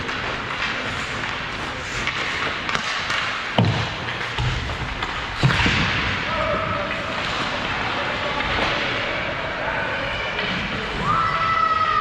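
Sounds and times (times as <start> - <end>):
ice rink din: 0.0 - 11.4
sharp thump on rink: 2.0 - 6.2.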